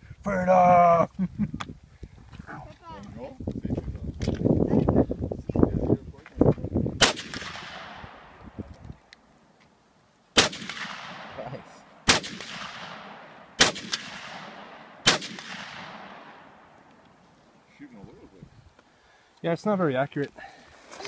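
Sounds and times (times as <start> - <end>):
rifle shots with echo: 7.0 - 8.5, 10.4 - 16.8.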